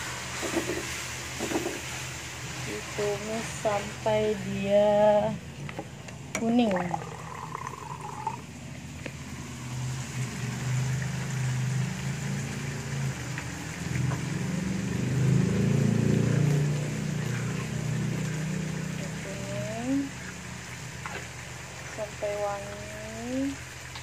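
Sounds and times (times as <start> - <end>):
spice paste sizzling in a wok: 0.0 - 4.8
low droning hum: 0.0 - 23.9.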